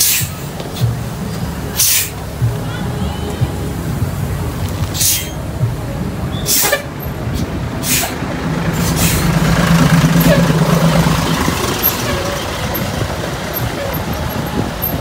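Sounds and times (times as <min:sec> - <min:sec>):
air brake hisses: 0:00.0 - 0:00.9, 0:01.8 - 0:02.2, 0:05.0 - 0:05.4, 0:06.4 - 0:08.2
diesel engine drone: 0:00.0 - 0:15.0.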